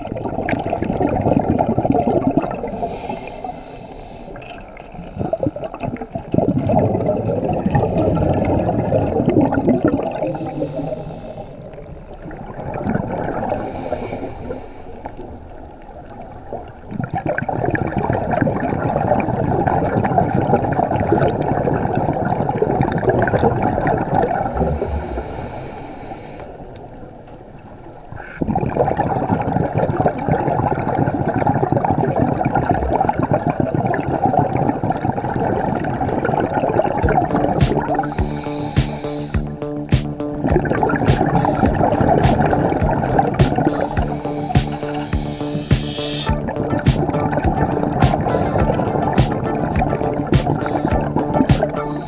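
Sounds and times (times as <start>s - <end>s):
underwater diver breathing bubbles: 0.0s - 15.5s, 17.0s - 26.8s, 28.2s - 52.0s.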